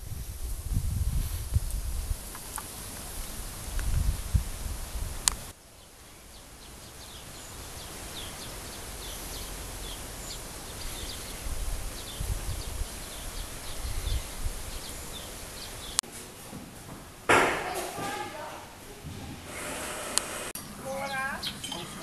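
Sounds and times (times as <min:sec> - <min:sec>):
low rumbles: 0:00.0 - 0:05.5, 0:07.1 - 0:16.0
steady outdoor hiss: 0:00.0 - 0:22.0
small birds chirping: 0:01.6 - 0:16.0, 0:20.5 - 0:22.0.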